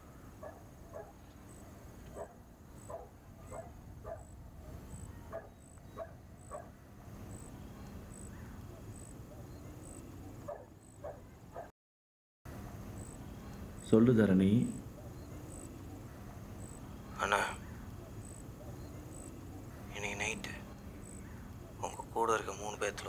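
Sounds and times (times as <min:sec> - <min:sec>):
faint dog barking: 0:00.4 - 0:06.8, 0:08.2 - 0:11.7.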